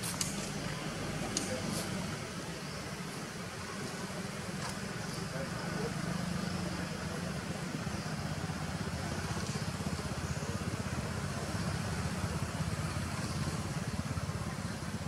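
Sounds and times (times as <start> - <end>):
engine rumble with flutter: 0.0 - 15.0.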